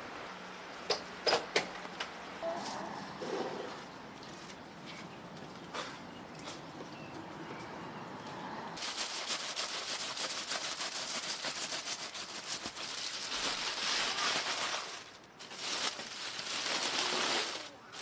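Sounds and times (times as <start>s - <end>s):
aluminium foil crinkling: 8.8s - 18.0s.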